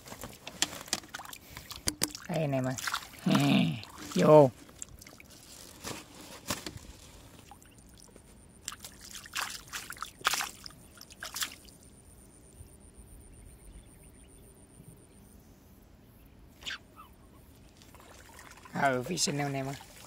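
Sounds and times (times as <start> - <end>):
water splashing and trickling: 0.0 - 11.9, 17.6 - 20.0.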